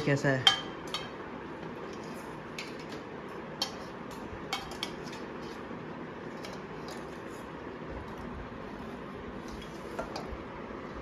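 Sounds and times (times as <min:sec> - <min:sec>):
spoon clinking on steel plate: 0:00.4 - 0:01.2, 0:04.5 - 0:05.2.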